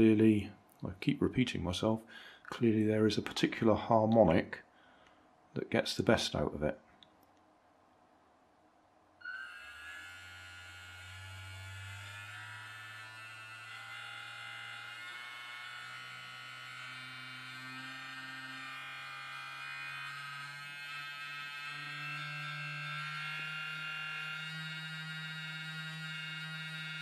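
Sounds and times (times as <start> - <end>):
small motor buzzing: 9.2 - 27.0.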